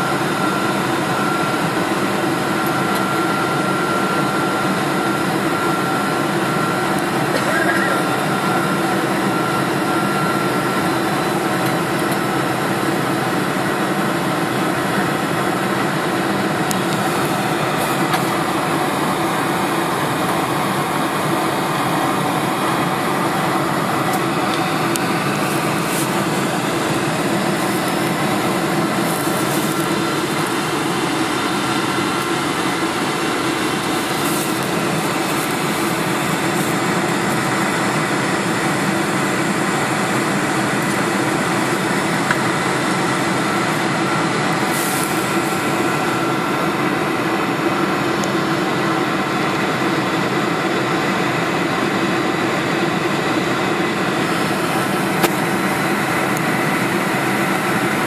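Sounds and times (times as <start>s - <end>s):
jet engines droning in cabin: 0.0s - 58.0s
rushing airflow: 15.6s - 47.0s.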